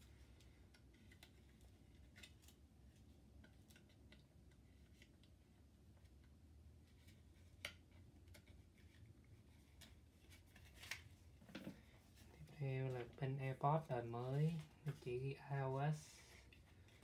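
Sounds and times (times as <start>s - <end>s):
paper rustling: 6.8s - 13.3s, 14.0s - 17.0s.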